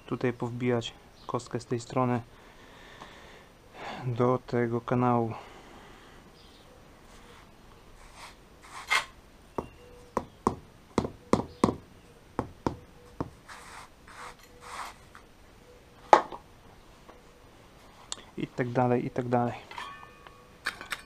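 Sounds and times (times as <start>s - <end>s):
blocks scraping over sand: 7.2s - 9.2s, 13.5s - 15.1s
rubber mallet knocking paving blocks: 9.6s - 11.8s.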